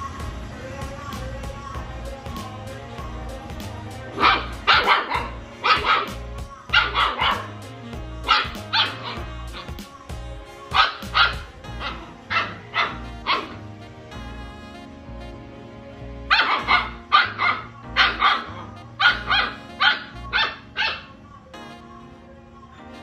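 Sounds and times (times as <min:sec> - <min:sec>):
background music: 0:00.0 - 0:23.0
puppy barking: 0:04.1 - 0:07.6, 0:08.3 - 0:09.7, 0:10.7 - 0:13.6, 0:16.3 - 0:21.2.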